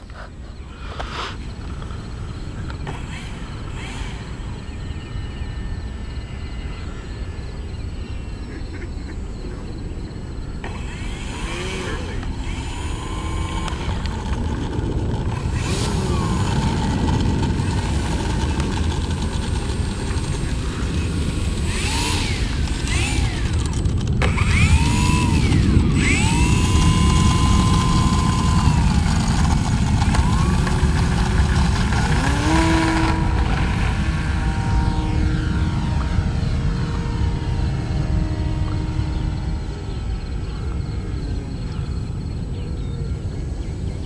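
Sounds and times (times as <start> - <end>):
steady low rumble: 0.0 - 44.0
model plane electric motor whining: 0.9 - 7.9, 10.2 - 42.1.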